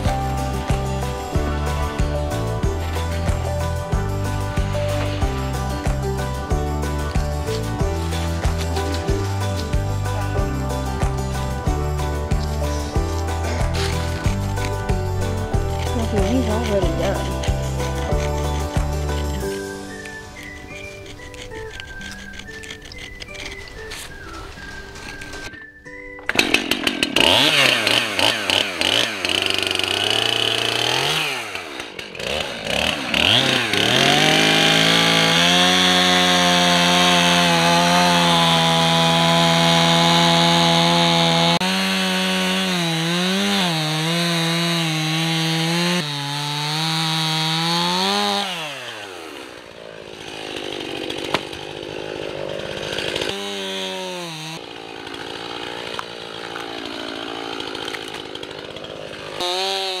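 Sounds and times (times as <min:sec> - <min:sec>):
small engine revving: 0:26.3 - 1:00.0.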